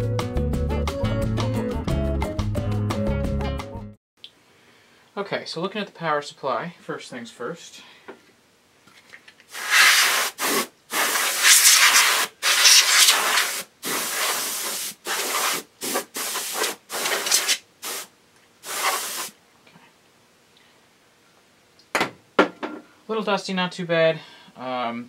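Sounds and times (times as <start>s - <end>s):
compressed air duster hissing: 9.5s - 19.4s.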